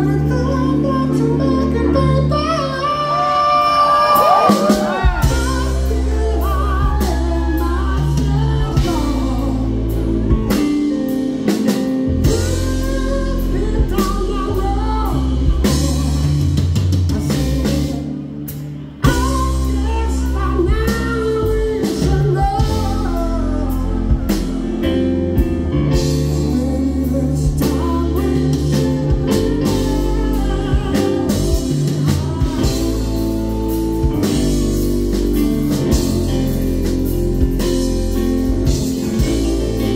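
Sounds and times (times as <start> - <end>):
man singing: 0.0 - 39.9
rock band playing: 0.0 - 39.9.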